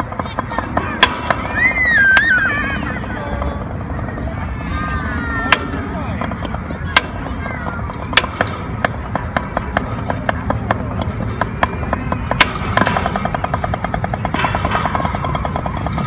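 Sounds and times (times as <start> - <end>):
drumsticks striking practice pad: 0.0 - 2.3, 5.4 - 7.3, 7.9 - 16.0.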